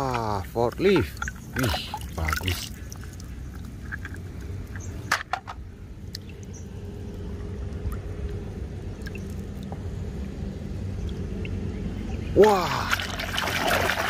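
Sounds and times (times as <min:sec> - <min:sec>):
hand stirring muddy water: 0:12.4 - 0:14.0.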